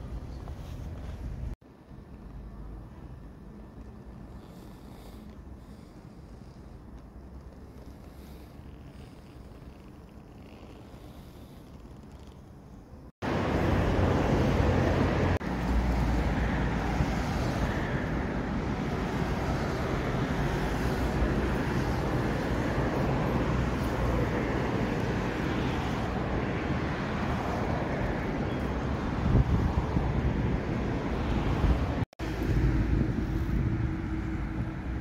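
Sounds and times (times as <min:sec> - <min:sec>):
road traffic rumble: 0:00.0 - 0:35.0
wind buffeting microphone: 0:16.1 - 0:35.0.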